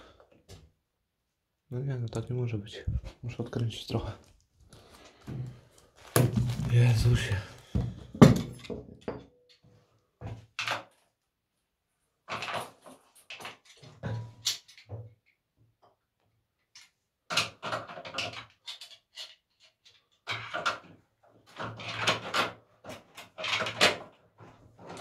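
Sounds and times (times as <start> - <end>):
plumbing fitting knocks and scraping: 5.2 - 9.4.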